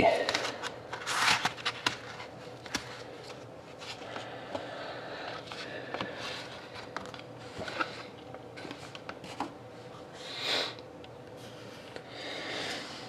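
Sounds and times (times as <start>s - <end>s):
trading cards clicking and rustling: 0.2s - 4.3s.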